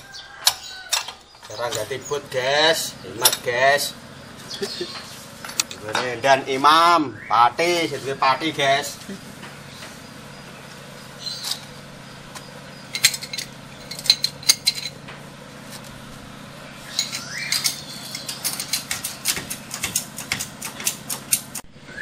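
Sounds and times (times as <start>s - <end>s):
metal tools clinking on metal: 0.4s - 6.3s, 12.3s - 15.9s, 16.8s - 21.6s.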